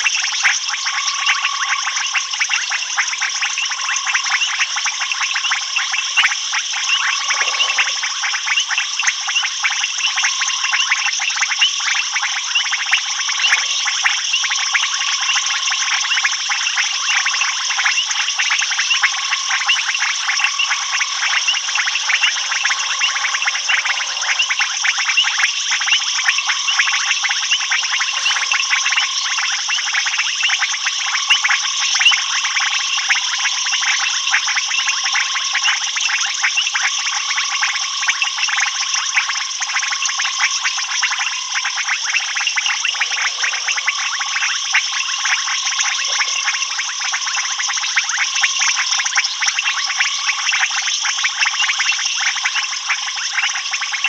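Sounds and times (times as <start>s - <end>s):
frogs and insects trilling: 0.0s - 54.0s.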